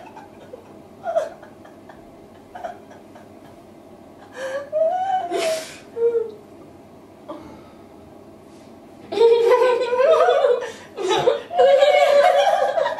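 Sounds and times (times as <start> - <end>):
woman laughing: 0.0 - 6.3, 9.1 - 12.9.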